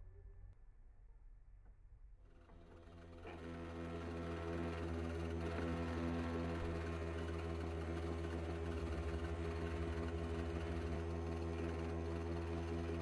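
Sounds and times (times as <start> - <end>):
polishing motor humming: 2.7 - 13.0.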